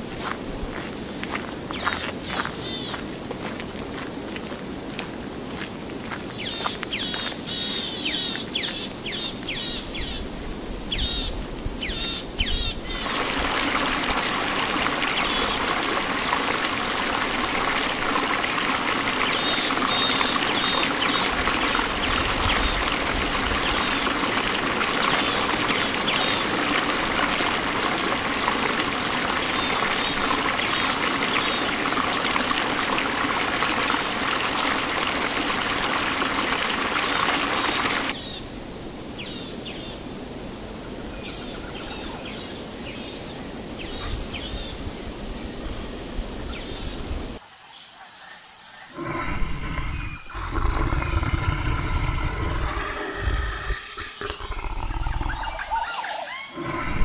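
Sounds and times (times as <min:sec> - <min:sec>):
running water rushing: 0:00.0 - 0:47.4, 0:49.0 - 0:57.0
birds chirping: 0:05.1 - 0:33.1, 0:48.7 - 0:57.0.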